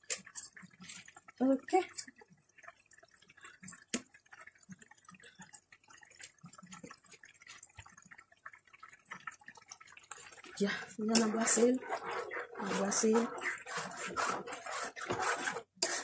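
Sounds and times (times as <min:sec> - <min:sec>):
rice pot bubbling and popping: 0:00.0 - 0:16.0.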